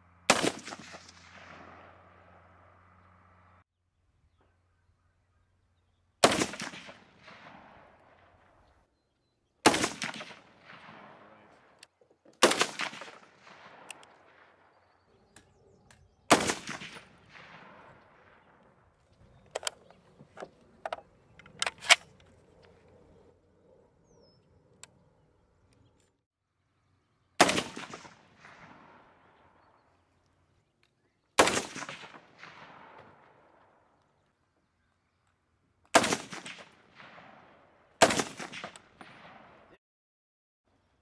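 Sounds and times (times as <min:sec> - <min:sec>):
rifle shots with long echo: 0:00.0 - 0:03.2, 0:06.2 - 0:08.8, 0:09.6 - 0:11.8, 0:12.4 - 0:19.7, 0:27.4 - 0:30.0, 0:31.4 - 0:34.1, 0:35.9 - 0:39.8.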